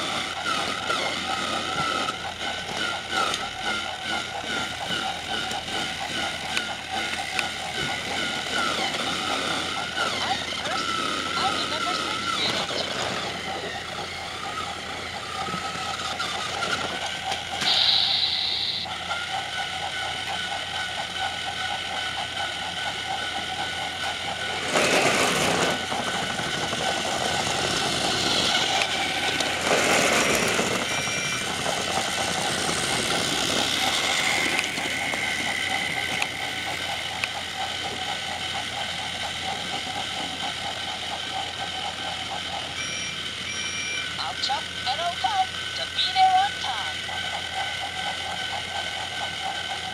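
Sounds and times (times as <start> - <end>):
toy train motors whirring: 0.0 - 49.9
toy train rattling: 0.0 - 49.9
brief high tone: 17.6 - 18.9.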